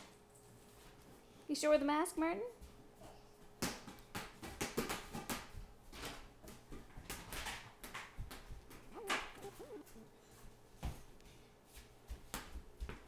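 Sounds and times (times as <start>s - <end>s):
child vocal sound: 8.9s - 10.1s.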